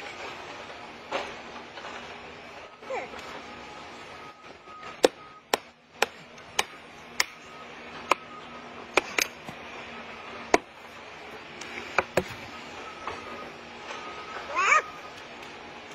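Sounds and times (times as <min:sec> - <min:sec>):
axe hammering plastic wedge: 0:05.0 - 0:07.4.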